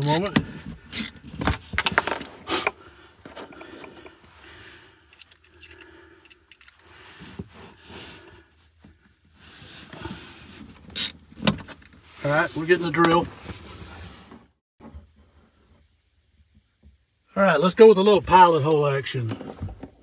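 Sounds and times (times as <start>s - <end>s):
screwdriver scraping and clicking: 0.9s - 1.2s, 10.9s - 11.2s.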